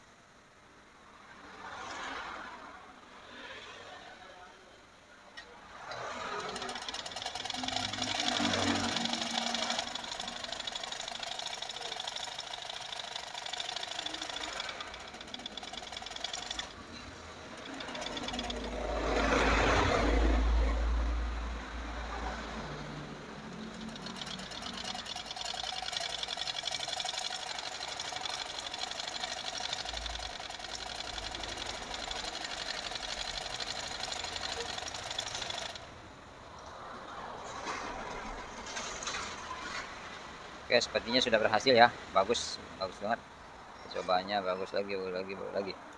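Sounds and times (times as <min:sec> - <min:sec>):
sewing machine clattering: 0:05.9 - 0:20.4, 0:23.3 - 0:35.9.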